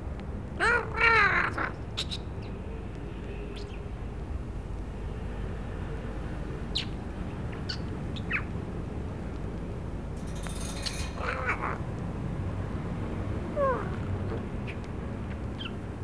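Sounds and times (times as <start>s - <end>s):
birds chirping: 0.6s - 4.0s, 6.5s - 8.6s, 10.2s - 11.9s, 13.6s - 16.0s.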